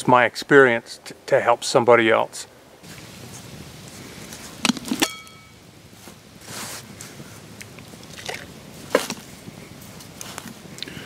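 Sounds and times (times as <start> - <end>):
short hiss: 2.8 - 5.0
ringing metal clink: 5.0 - 5.6.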